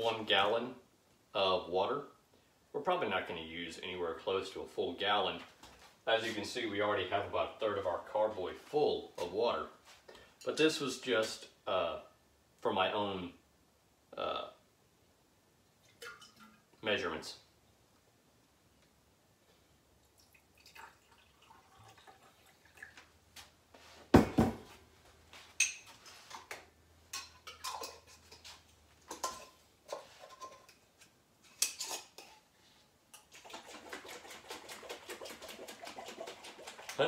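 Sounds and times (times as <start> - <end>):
glass jars knocking and clinking: 27.1 - 28.5
water washing: 33.3 - 37.0.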